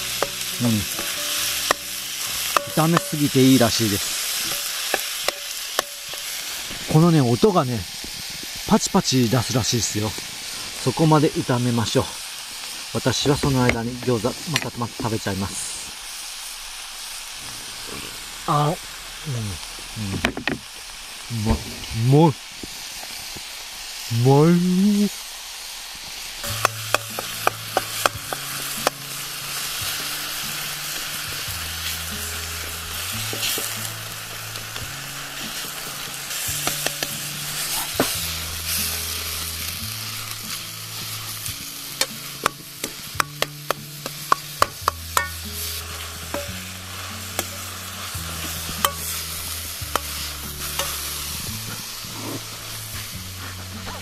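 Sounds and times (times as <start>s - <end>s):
soft background music: 0.0s - 6.4s, 26.4s - 54.0s
metal ladle scraping a pan: 0.0s - 6.9s, 26.4s - 54.0s
meat sizzling in a wok: 0.0s - 54.0s.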